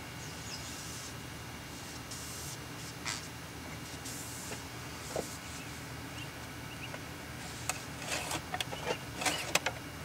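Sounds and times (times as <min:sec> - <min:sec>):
faint bird chirps: 0:00.1 - 0:01.0
dipstick clicking and scraping: 0:07.6 - 0:09.8.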